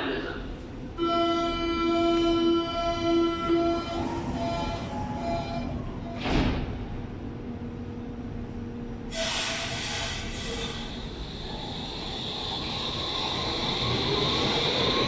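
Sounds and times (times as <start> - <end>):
pulsing door warning tone: 1.6 - 6.2
sliding doors thumping shut: 6.1 - 6.8
hiss: 9.1 - 14.7.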